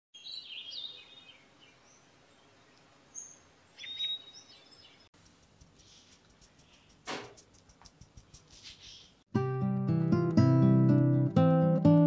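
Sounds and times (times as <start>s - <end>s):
birds chirping: 0.2s - 9.2s
faint background hiss: 0.2s - 9.2s.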